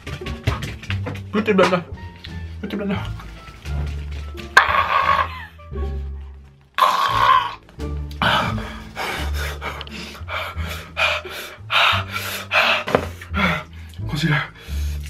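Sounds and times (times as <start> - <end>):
person panting and gasping: 8.1 - 15.0.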